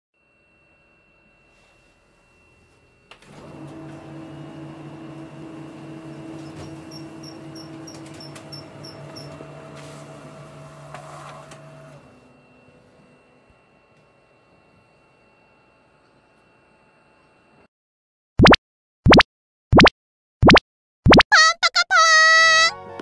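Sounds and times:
photocopier hum and whir: 0.2 - 17.7.

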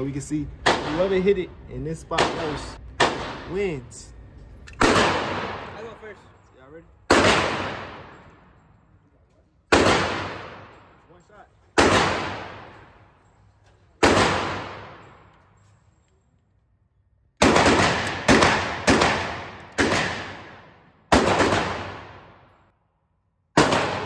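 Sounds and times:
pistol shots echoing indoors: 0.6 - 1.2, 2.1 - 3.5, 4.7 - 6.0, 7.0 - 8.7, 9.6 - 11.0, 11.7 - 13.4, 14.0 - 15.5, 17.2 - 24.0.

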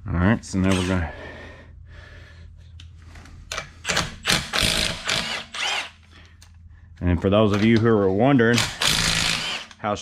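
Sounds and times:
cordless impact wrench bursts: 3.8 - 6.0, 8.5 - 9.8.

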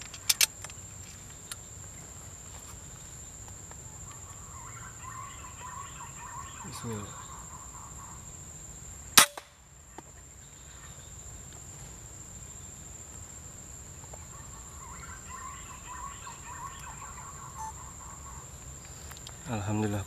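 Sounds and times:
air rifle shot: 9.2 - 9.6.

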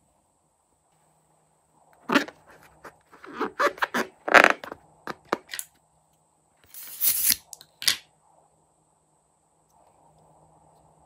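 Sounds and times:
balloon rubbing and squeaking: 2.0 - 5.3.

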